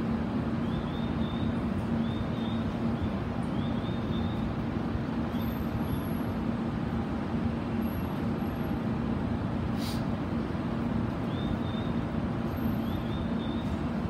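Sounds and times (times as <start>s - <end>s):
platform hum and rumble: 0.0s - 14.0s.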